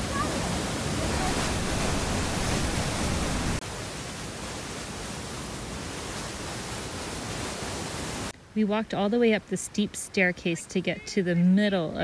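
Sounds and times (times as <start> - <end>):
waterfall roaring: 0.0 - 8.3.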